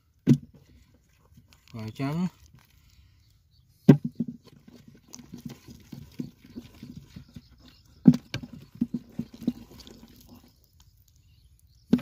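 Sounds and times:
wet mud squelching: 0:04.4 - 0:12.0.

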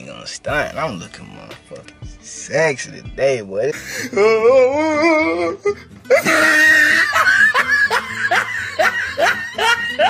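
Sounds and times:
music playing: 0:00.0 - 0:10.0
man laughing: 0:03.7 - 0:10.0.

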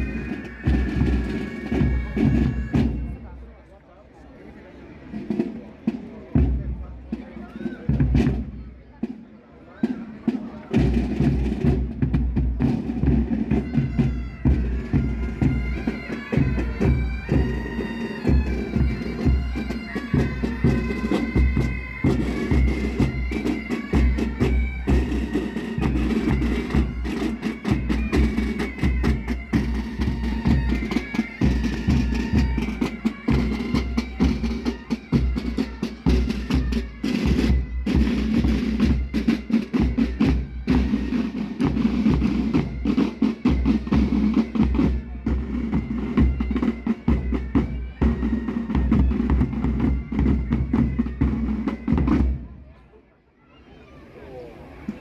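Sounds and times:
drums beating: 0:00.0 - 0:03.4, 0:05.1 - 0:09.2, 0:09.8 - 0:52.6
bagpipes with drones: 0:00.0 - 0:03.8, 0:12.6 - 0:52.3.

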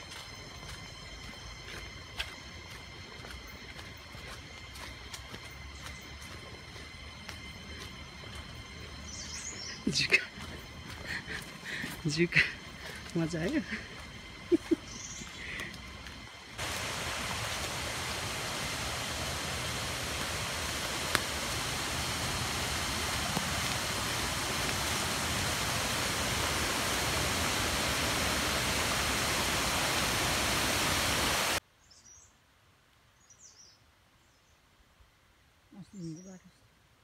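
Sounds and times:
steady rushing noise: 0:16.2 - 0:31.6
faint high bird chirps: 0:31.8 - 0:32.4, 0:33.2 - 0:34.6.

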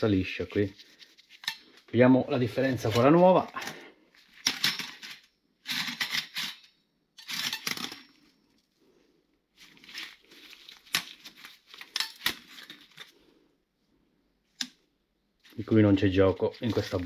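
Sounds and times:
rustling and scraping handling: 0:00.0 - 0:17.0
metal parts clicking together: 0:04.4 - 0:08.3.

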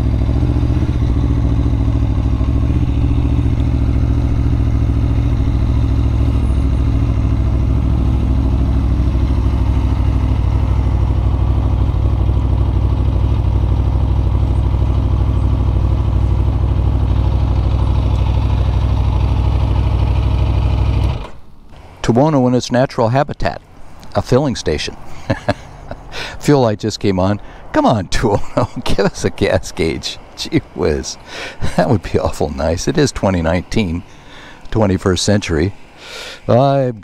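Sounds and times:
motorcycle engine idling: 0:00.0 - 0:21.2, 0:28.2 - 0:36.0.

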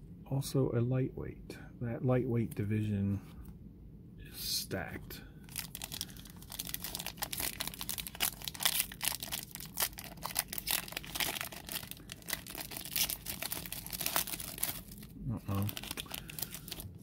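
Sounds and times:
foil wrapper tearing and crinkling: 0:05.5 - 0:17.0.

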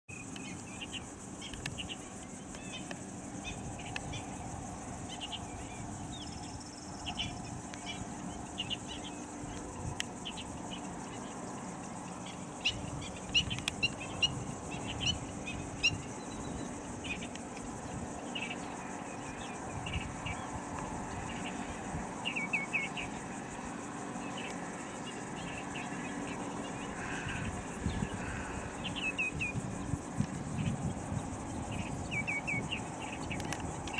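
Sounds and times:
high insect buzz: 0:00.1 - 0:33.9
sharp clicks: 0:01.4 - 0:03.0.

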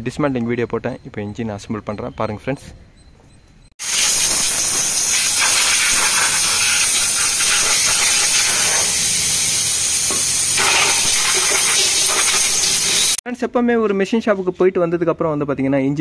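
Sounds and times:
high-pressure water jet hissing: 0:03.8 - 0:13.2.

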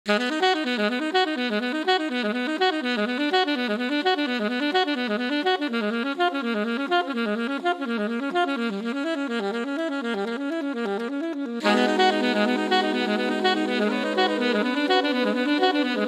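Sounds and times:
melodic instrument repeating short notes: 0:11.6 - 0:16.0.

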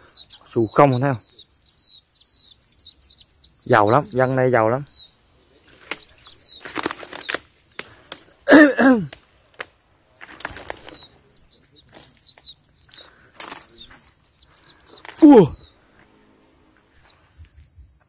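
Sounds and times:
small birds chirping: 0:00.0 - 0:18.0
rustling: 0:05.4 - 0:08.5, 0:09.1 - 0:17.8.

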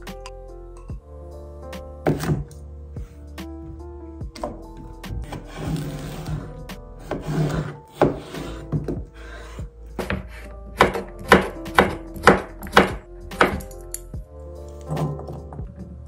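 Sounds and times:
knife chopping on wooden board: 0:02.0 - 0:02.4, 0:07.0 - 0:09.0, 0:10.0 - 0:13.6.

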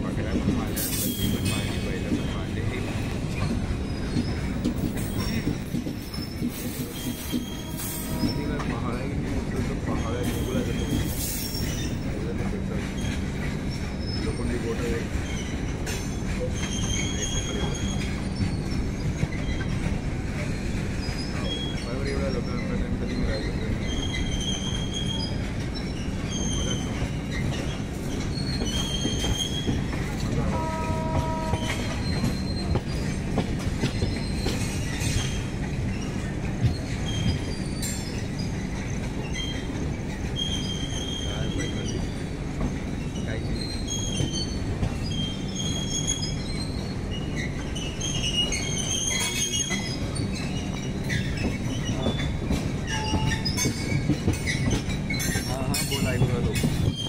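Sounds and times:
train wheels rumbling: 0:00.0 - 0:57.0
wheels squealing on rails: 0:00.0 - 0:57.0
horn-like tone: 0:30.4 - 0:32.0.

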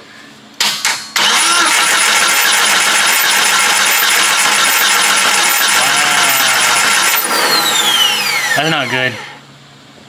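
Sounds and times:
engine cranking: 0:01.2 - 0:09.0.

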